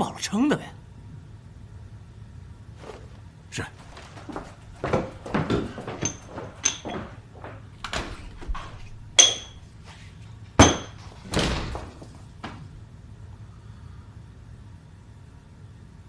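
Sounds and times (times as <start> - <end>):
boots walking on wooden floor: 3.8 - 9.0
sharp knocks and clicks: 4.0 - 9.6.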